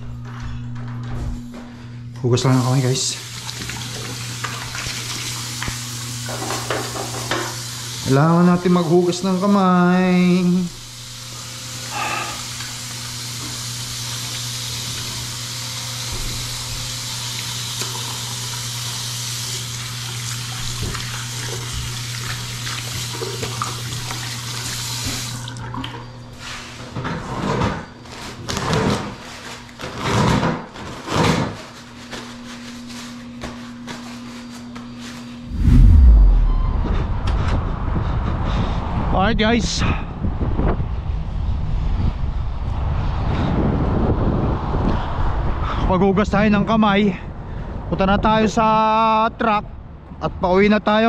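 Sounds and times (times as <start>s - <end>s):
faucet running into sink: 16.1s - 25.9s
steady low hum: 35.4s - 38.6s.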